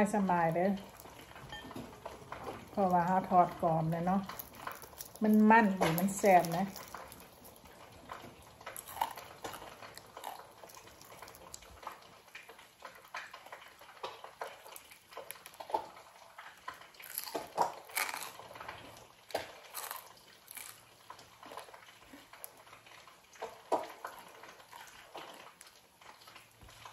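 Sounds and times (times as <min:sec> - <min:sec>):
person chewing crunchy food: 0:00.8 - 0:26.9.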